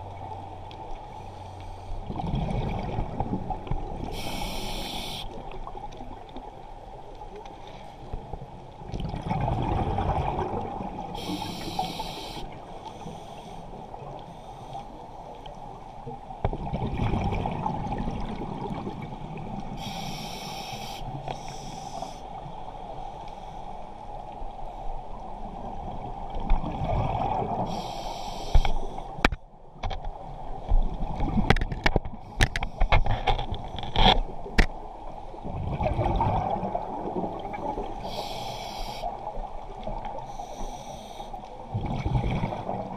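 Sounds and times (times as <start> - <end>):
regulator inhale hiss: 4.1 - 5.4, 11.2 - 15.1, 19.7 - 22.3, 27.7 - 29.2, 38.0 - 39.2, 40.2 - 41.5.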